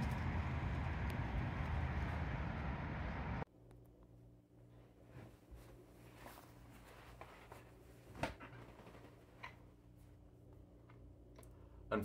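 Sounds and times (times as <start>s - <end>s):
faint electrical hum: 3.5s - 12.0s.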